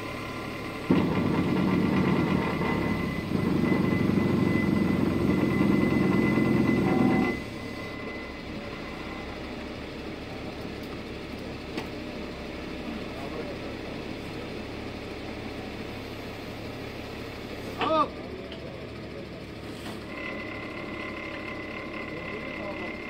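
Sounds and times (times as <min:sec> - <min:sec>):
thin high whine: 0:00.0 - 0:09.8, 0:20.1 - 0:23.0
truck engine running: 0:00.0 - 0:23.0.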